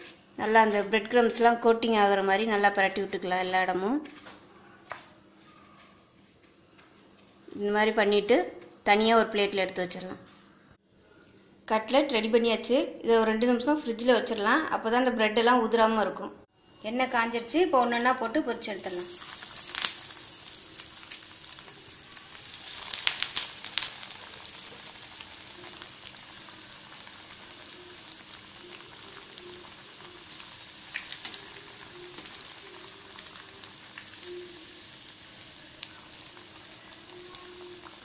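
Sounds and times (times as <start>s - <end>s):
chicken deep-frying in oil: 18.7s - 38.0s.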